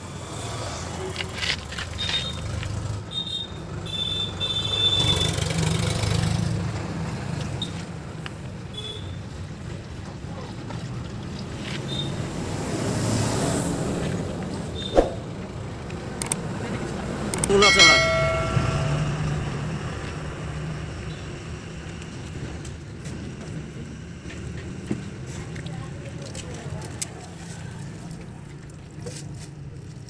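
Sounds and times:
wrench clinking on metal: 17.4s - 19.5s.

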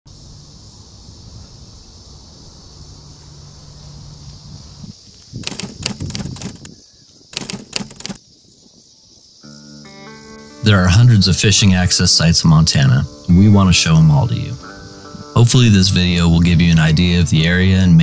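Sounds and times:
insect buzz: 0.1s - 18.0s
rapid crackling clicks: 5.4s - 6.7s, 7.3s - 8.2s.

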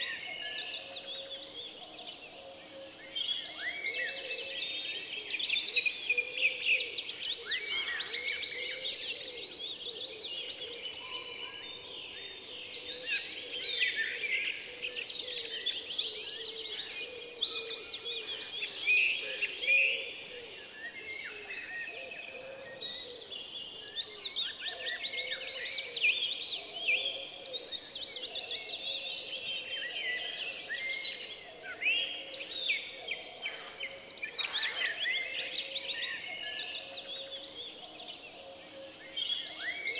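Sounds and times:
songbirds chirping and trilling: 0.0s - 39.9s.

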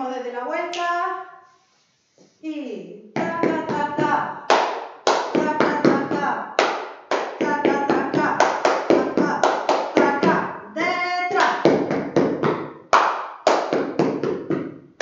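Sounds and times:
hand claps: 3.2s - 10.4s, 11.3s - 14.7s
boots stamping on tiled floor: 11.6s - 12.7s, 13.7s - 14.7s.

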